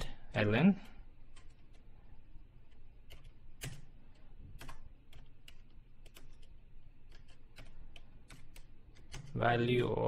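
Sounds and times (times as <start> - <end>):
keyboard typing clicks: 1.3 - 1.8, 2.7 - 9.4.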